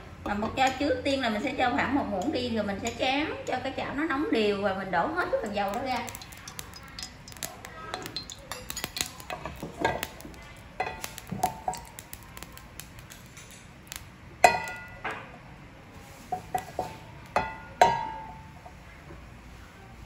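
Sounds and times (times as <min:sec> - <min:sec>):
oil popping in pan: 0:04.8 - 0:15.5, 0:16.1 - 0:18.7.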